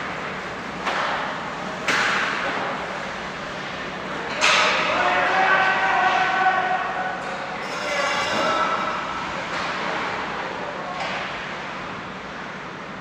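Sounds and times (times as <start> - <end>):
arena noise: 1.7 - 12.0
hockey stick or puck clacks: 1.8 - 2.5.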